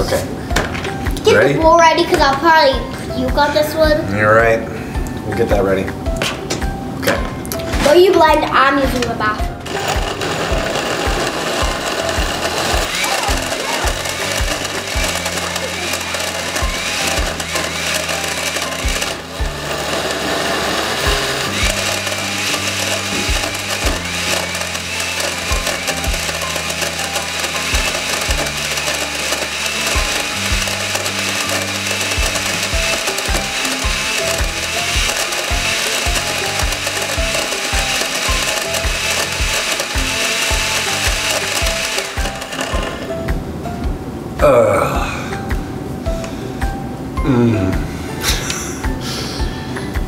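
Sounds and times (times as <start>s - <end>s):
background music with beat: 0.0s - 50.0s
blender running: 9.5s - 43.2s.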